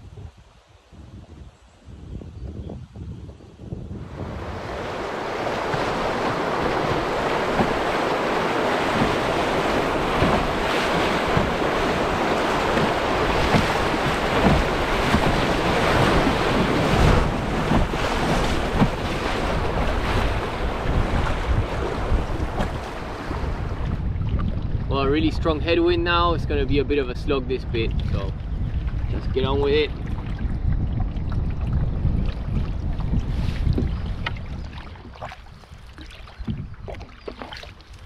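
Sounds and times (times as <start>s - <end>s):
wind buffeting microphone: 0.0s - 38.0s
river rapid rushing: 4.1s - 21.8s.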